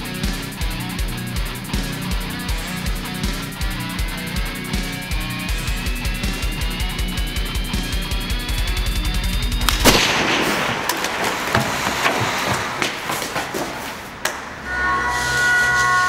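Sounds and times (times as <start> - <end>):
fast pulsing music: 0.0 - 9.9
steady chord of tones: 0.0 - 10.9, 14.2 - 16.0
gunshots and impacts: 9.6 - 13.7.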